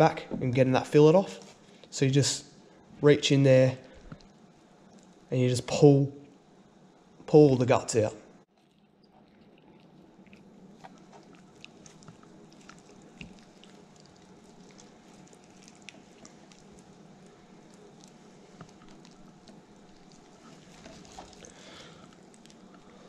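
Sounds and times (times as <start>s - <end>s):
wet squelching: 8.5s - 23.0s.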